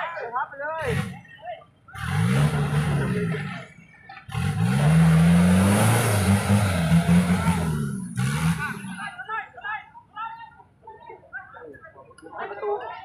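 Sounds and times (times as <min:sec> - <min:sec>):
diesel engine revving: 0:00.8 - 0:01.2, 0:01.9 - 0:09.2.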